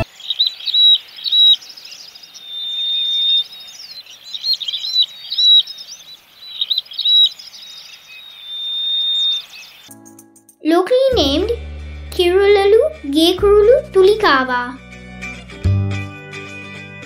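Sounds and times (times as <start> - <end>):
bird whistle: 0.0 - 1.6, 2.4 - 9.9
bird chirping: 0.0 - 9.9.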